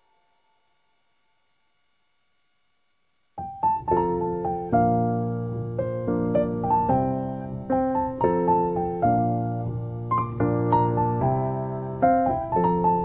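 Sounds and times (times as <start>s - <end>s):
gentle piano music: 3.4s - 13.0s.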